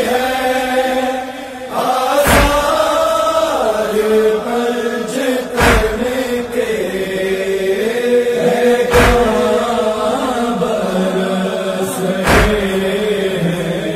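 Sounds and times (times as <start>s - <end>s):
voices chanting a lament: 0.0s - 13.9s
heavy thumps: 2.2s - 2.9s, 5.6s - 6.5s, 8.9s - 9.7s, 12.2s - 13.1s.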